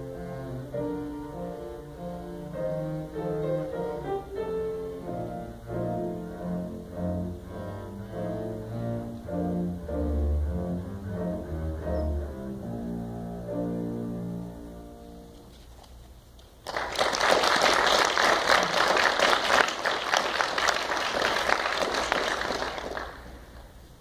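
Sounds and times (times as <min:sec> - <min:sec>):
double bass: 0:00.0 - 0:15.0
piano: 0:00.0 - 0:24.0
audience applause: 0:16.6 - 0:23.7.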